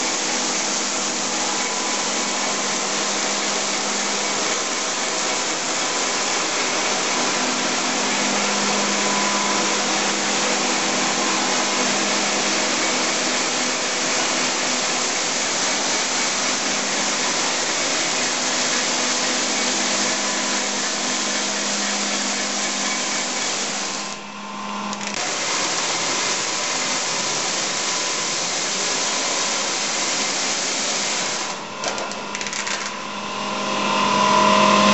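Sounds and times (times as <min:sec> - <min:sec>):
tape machine whirring: 0:00.0 - 0:27.7.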